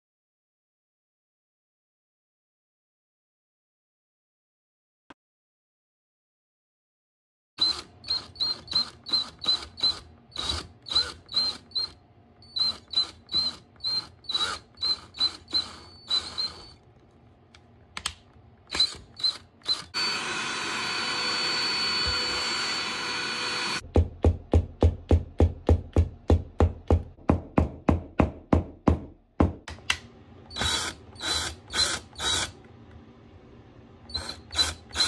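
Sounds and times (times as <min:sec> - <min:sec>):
cordless drill bursts: 0:07.6 - 0:16.8, 0:18.7 - 0:23.8, 0:30.5 - 0:32.6, 0:34.1 - 0:35.0
hand vacuum high whine: 0:07.6 - 0:16.8, 0:18.7 - 0:23.8.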